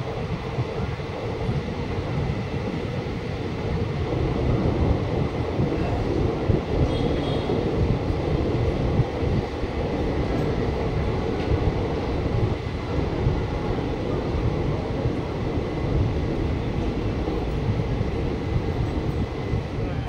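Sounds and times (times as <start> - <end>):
train wheels rumbling on track: 0.0 - 20.0.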